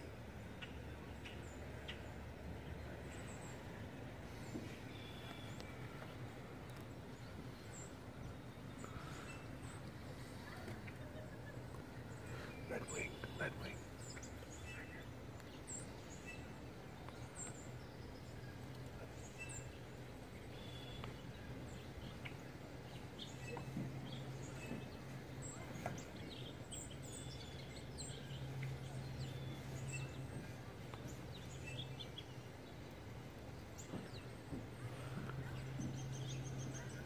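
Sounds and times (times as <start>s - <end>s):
birds chirping: 0.0s - 37.0s
outdoor hiss: 11.8s - 17.8s.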